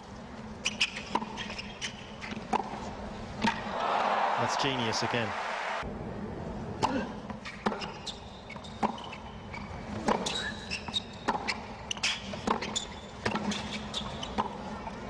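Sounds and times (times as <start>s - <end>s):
tennis ball bouncing: 2.3s - 2.8s, 3.4s - 3.8s.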